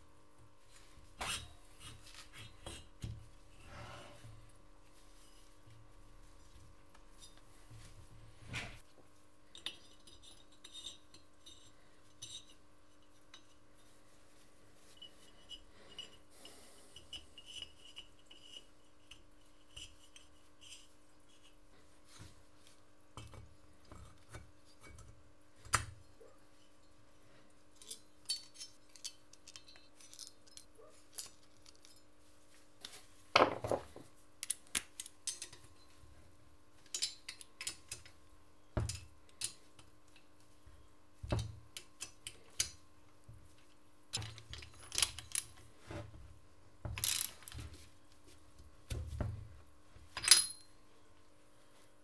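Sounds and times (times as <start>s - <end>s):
metallic clinks of hand tools: 50.2s - 50.7s.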